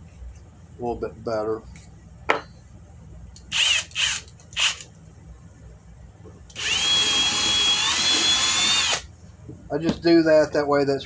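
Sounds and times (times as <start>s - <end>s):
cordless drill whining: 3.5s - 4.8s, 6.5s - 9.1s.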